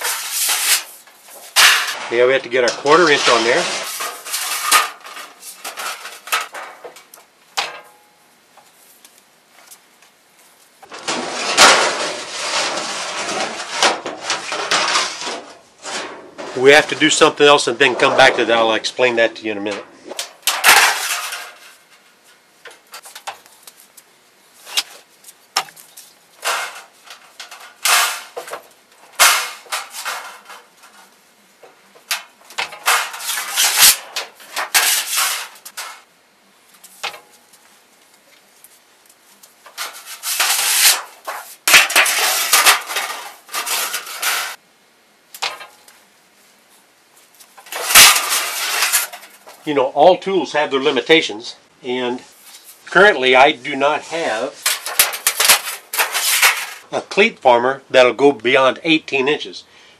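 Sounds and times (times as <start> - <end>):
sheet metal rattling and clanking: 1.5 - 8.0, 10.9 - 16.6, 20.2 - 22.0, 26.4 - 31.1, 32.0 - 36.1, 39.7 - 44.6, 47.6 - 49.6, 54.6 - 56.8.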